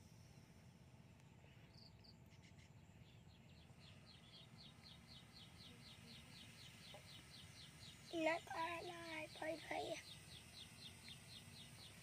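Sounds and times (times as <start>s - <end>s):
insect chirping: 0.0s - 12.0s
low outdoor background hum: 0.0s - 12.0s.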